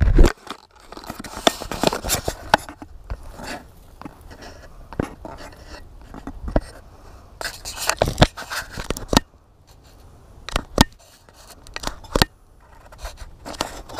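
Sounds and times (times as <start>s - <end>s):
fingers handling a camera: 0.0s - 6.8s.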